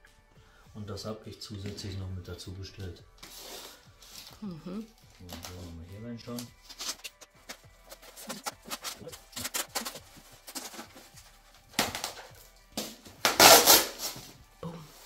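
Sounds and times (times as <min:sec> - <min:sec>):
plastic packing rustling: 0:05.2 - 0:12.3
box cutter scraping through tape: 0:07.9 - 0:11.1, 0:12.0 - 0:14.4.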